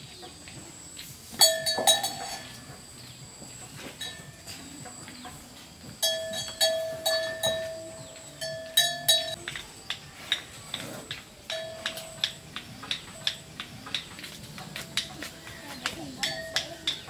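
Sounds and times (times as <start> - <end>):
small metal bell clanking: 1.4 - 2.7, 4.0 - 4.6, 6.0 - 9.5, 11.5 - 12.4.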